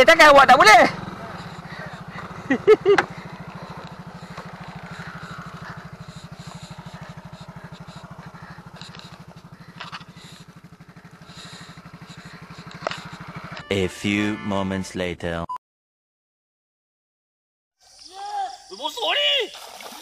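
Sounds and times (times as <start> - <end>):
scooter engine running: 0.0 - 14.4
person exclaiming: 18.1 - 19.5.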